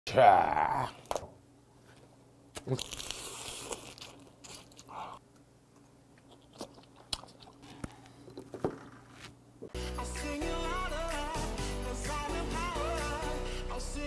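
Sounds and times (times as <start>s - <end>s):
sucking crab meat: 2.5s - 5.2s
chewing: 2.6s - 5.2s, 6.2s - 8.5s.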